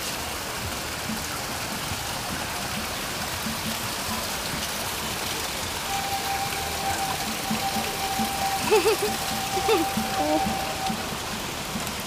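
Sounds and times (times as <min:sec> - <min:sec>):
water running over rocks: 0:00.0 - 0:12.0
steady held tone: 0:05.9 - 0:11.4.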